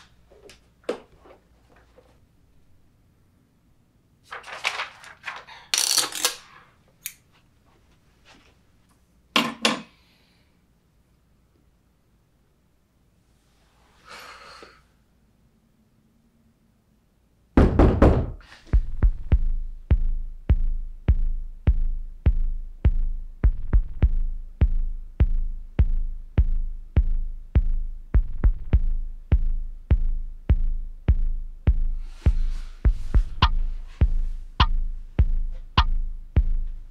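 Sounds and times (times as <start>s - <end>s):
faint breath: 9.9s - 10.7s, 13.6s - 15.0s
loud knocks: 17.6s - 18.4s
heartbeat-like score pulse: 18.8s - 36.9s.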